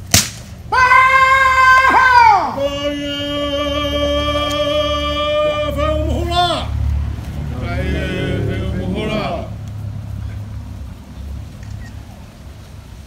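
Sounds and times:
man's long ceremonial call: 0.7s - 6.8s, 7.5s - 9.6s.

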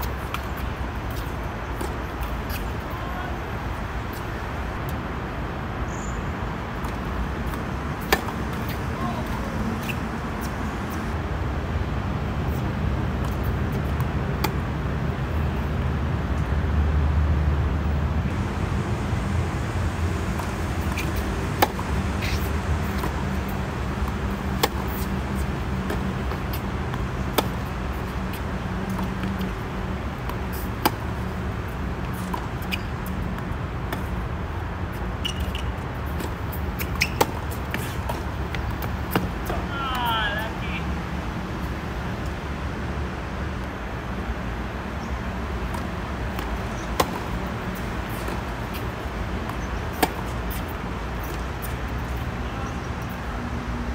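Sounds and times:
tennis ball racket hits: 6.8s - 10.0s, 20.4s - 27.7s, 45.6s - 51.4s.

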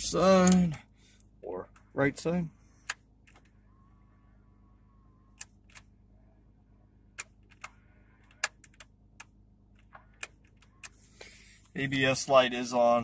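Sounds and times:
faint motor whine: 0.0s - 13.0s
sharp irregular clicks: 5.3s - 5.9s, 7.1s - 11.0s.

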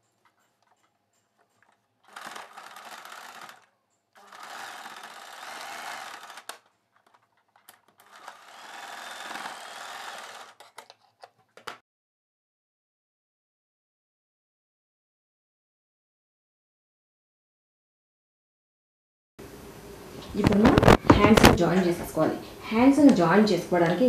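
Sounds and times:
electric sewing machine stitching: 2.1s - 7.2s, 8.0s - 10.8s.

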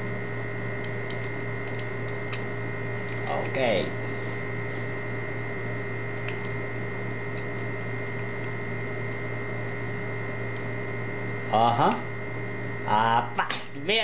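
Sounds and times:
electrical mains hum: 0.0s - 14.0s.

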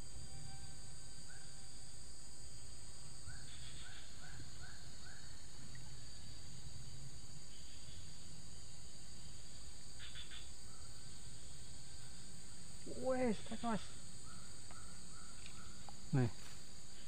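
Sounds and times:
insects buzzing: 0.0s - 17.0s.

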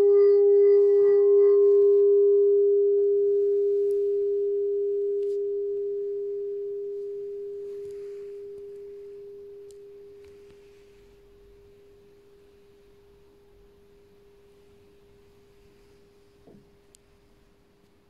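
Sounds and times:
singing bowl ringing: 0.0s - 11.0s.

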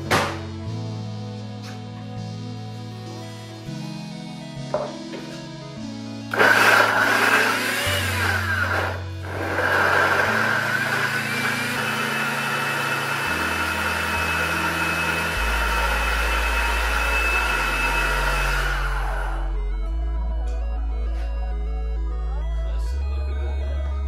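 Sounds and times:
background music with bass line: 0.0s - 24.0s
blender running: 6.3s - 19.5s.

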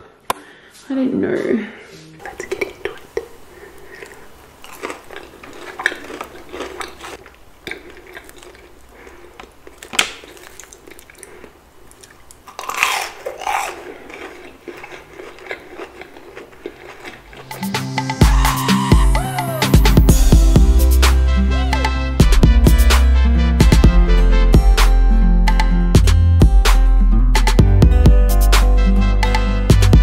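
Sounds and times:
person chewing crunchy food: 2.2s - 21.0s.

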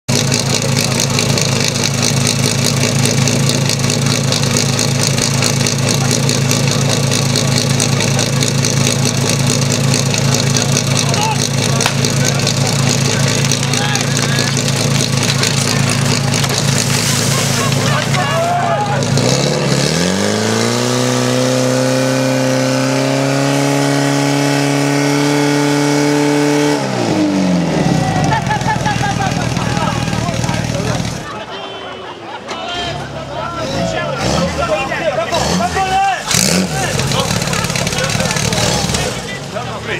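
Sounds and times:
engine idling: 0.1s - 19.8s, 27.4s - 31.5s, 32.6s - 39.9s.

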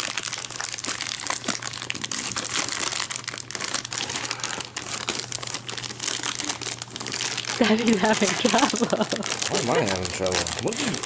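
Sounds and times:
wrapping paper crinkling and tearing: 0.0s - 11.0s.

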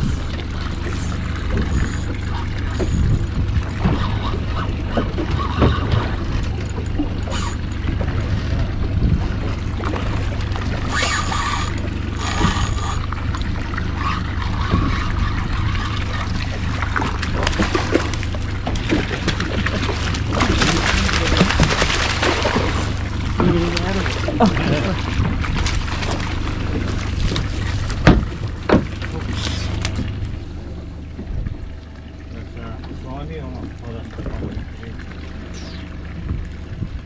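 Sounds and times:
low rumble: 0.0s - 37.0s
water sloshing against hull: 0.0s - 37.0s
fish splashing at surface: 9.8s - 30.2s.

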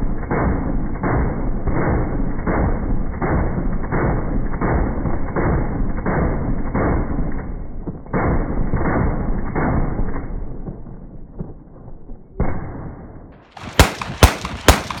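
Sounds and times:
sharp gunshots: 0.0s - 15.0s
slowed machine gun booms: 0.0s - 15.0s.

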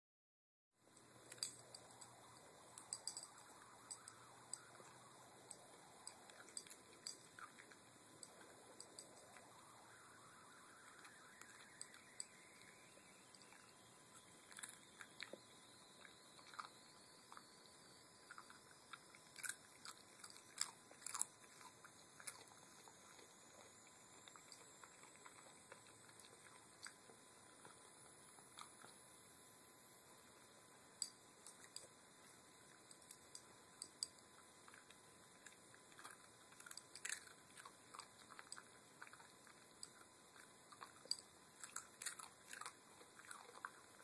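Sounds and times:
dog crunching chips: 14.2s - 15.4s, 18.3s - 27.8s, 34.6s - 44.0s.

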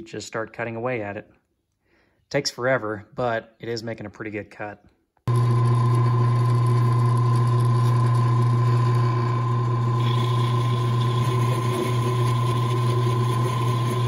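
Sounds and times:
drill press motor humming: 5.3s - 14.0s.

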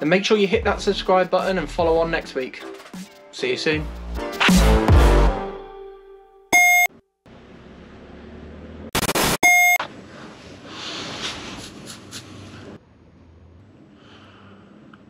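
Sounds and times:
outro music: 3.8s - 6.4s
short electronic beeps: 6.6s - 6.9s, 9.0s - 9.8s.

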